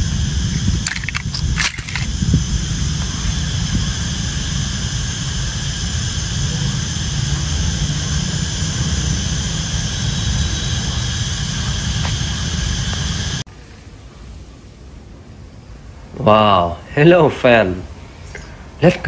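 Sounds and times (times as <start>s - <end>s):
wind buffeting microphone: 0.0s - 7.0s.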